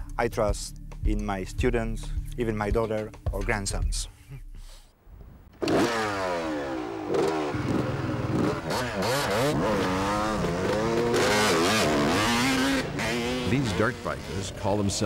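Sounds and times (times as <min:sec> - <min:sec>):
dirt bike engines revving: 0:05.6 - 0:15.0.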